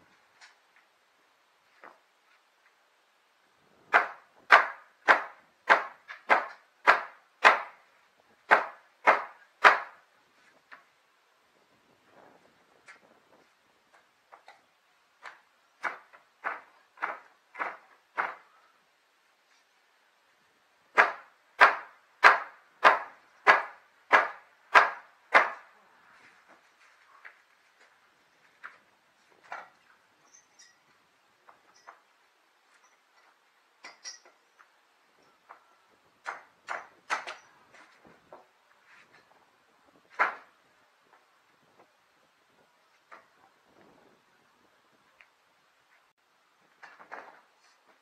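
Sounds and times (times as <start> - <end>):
hammer striking wooden planks: 3.9 - 7.8, 8.5 - 10.0, 15.2 - 18.5, 20.9 - 25.7, 36.2 - 37.5.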